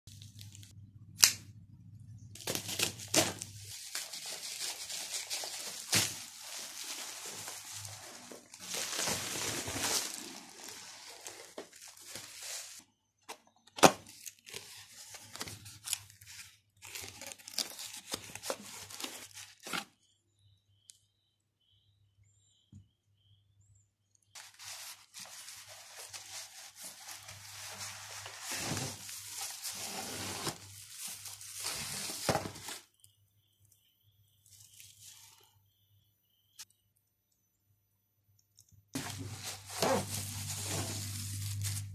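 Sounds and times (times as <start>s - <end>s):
plastic wrap crinkling: 2.4s - 12.8s, 13.8s - 19.9s, 24.4s - 32.9s, 39.0s - 41.9s.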